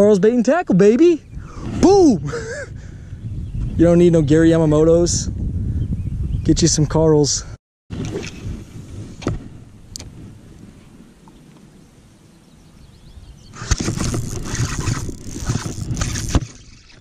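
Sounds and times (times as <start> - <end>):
wind on microphone: 1.2 - 11.2, 12.6 - 17.0
fishing reel: 13.6 - 17.0.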